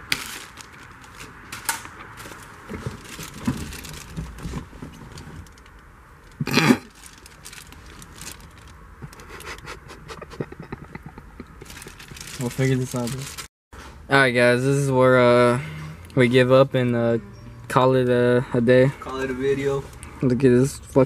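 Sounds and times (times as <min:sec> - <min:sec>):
plastic bag crinkling: 0:00.0 - 0:08.8, 0:11.6 - 0:13.5.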